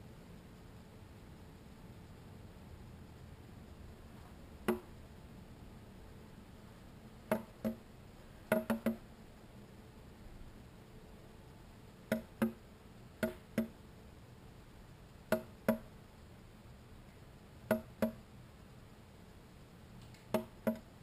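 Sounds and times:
bird pecking on window glass: 7.3 - 7.8, 8.5 - 9.0, 12.1 - 12.6, 13.2 - 13.8, 17.7 - 18.2, 20.1 - 20.9.

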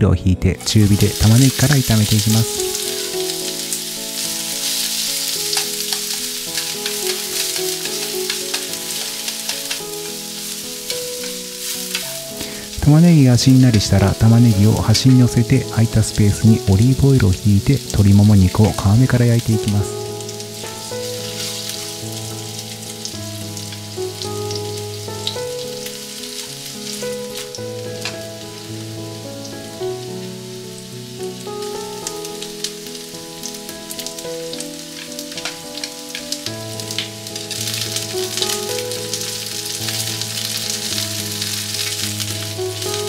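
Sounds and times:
background music: 0.0 - 43.0
chicken sizzling in frying pan: 0.6 - 43.0.

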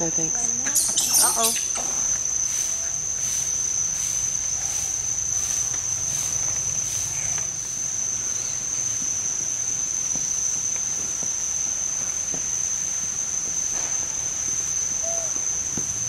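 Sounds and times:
insects high-pitched drone: 0.0 - 16.0
insect pulsing rasp: 0.4 - 8.9.

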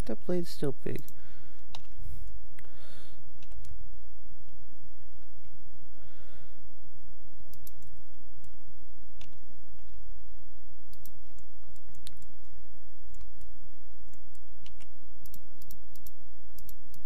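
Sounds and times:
steady low hum: 0.0 - 17.0
breaths into microphone: 1.1 - 3.3, 5.8 - 6.7
mouse clicks: 7.5 - 8.6, 10.9 - 12.5, 13.1 - 13.5, 14.1 - 17.0.

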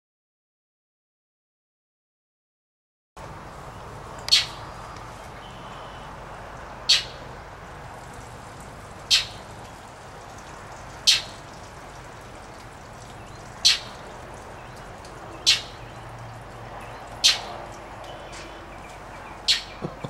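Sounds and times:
blue jay harsh calls: 4.2 - 6.1, 6.8 - 7.2, 9.0 - 9.6, 10.9 - 11.6, 13.2 - 14.0, 14.6 - 16.0, 17.0 - 20.0.

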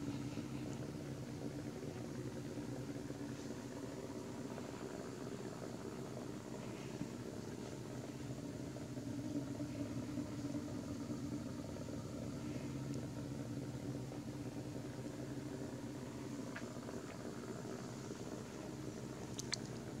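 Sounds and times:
faint ticks: 12.6 - 13.2, 16.4 - 17.8, 19.1 - 20.0.

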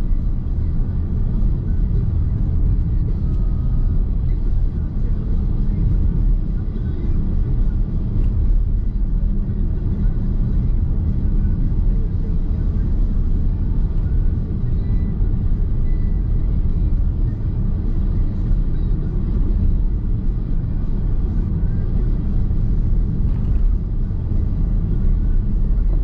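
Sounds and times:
road and tyre rumble in car: 0.0 - 26.0.

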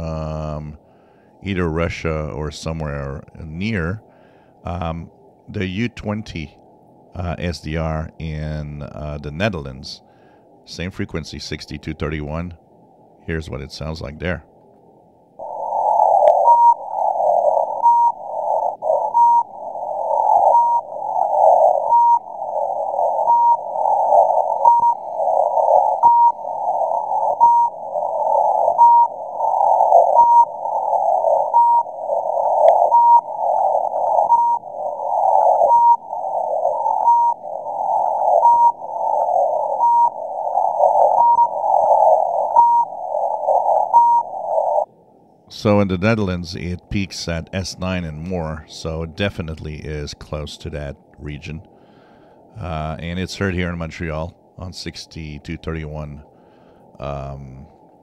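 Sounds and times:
radio hiss: 0.0 - 6.6, 15.4 - 44.9, 45.5 - 57.8
short radio beeps: 24.6 - 25.1, 27.4 - 27.8, 28.7 - 29.2, 30.1 - 30.6, 31.5 - 31.9, 36.9 - 37.4, 39.8 - 40.2, 44.0 - 44.3.

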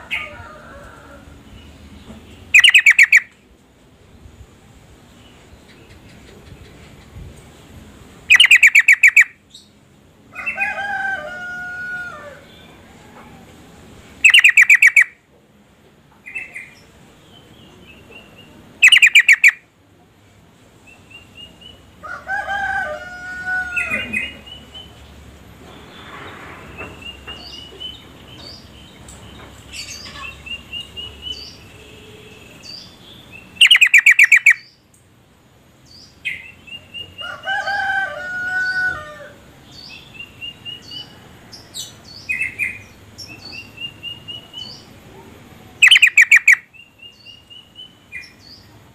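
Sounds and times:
lower pitch-bending bird call: 2.5 - 3.3, 8.3 - 9.4, 14.2 - 15.2, 18.8 - 19.6, 33.6 - 34.7, 45.8 - 46.7
short rising bird chirps: 14.2 - 15.1, 33.6 - 34.7
bird rapid repeated notes: 14.3 - 15.1, 33.6 - 34.6.

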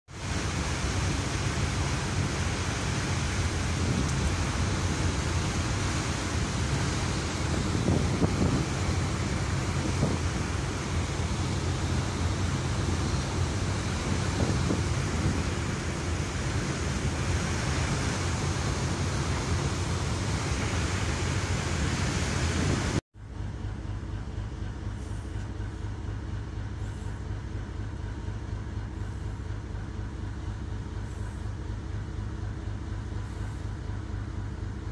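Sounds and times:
churning wake water: 0.1 - 34.9
ship engine drone: 0.1 - 34.9
wind rushing: 3.7 - 11.4, 12.1 - 23.0.

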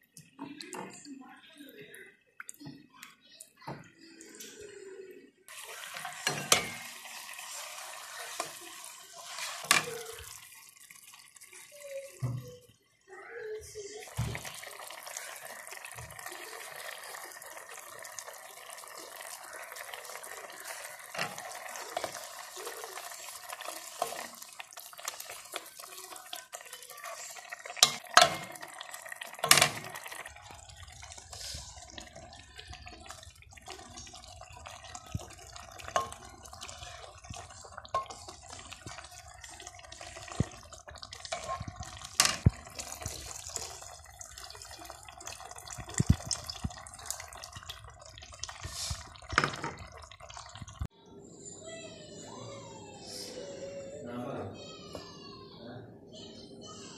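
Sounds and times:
curry simmering with watery hiss: 4.0 - 50.9
ladle stirring a pot: 5.5 - 12.2, 14.0 - 50.9.

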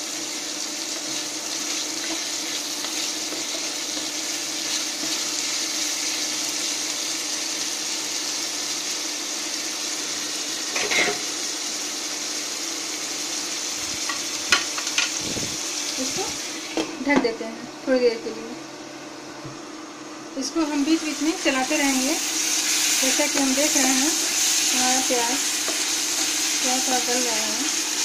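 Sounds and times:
onions sizzling in oil: 0.0 - 18.2, 20.3 - 28.0.

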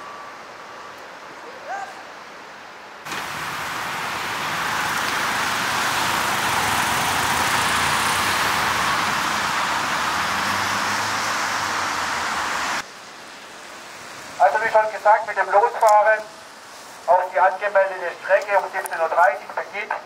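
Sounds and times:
road traffic rushing: 2.8 - 20.0
motorcycles riding past: 3.1 - 12.8.

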